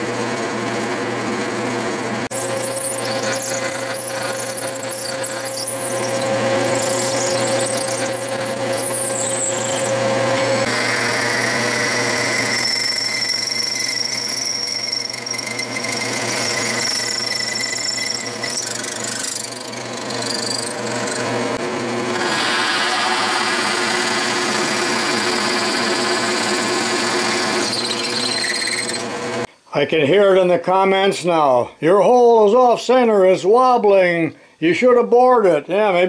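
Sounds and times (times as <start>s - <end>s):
motor hum: 0.0s - 13.8s
metal lathe running: 0.7s - 29.4s
drill boring into metal: 2.3s - 21.4s, 22.2s - 29.2s.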